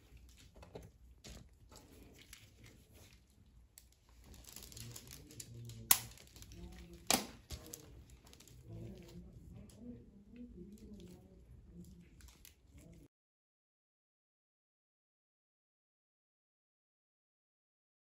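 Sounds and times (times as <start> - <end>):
paper rustling under gloved hands: 0.0 - 9.8.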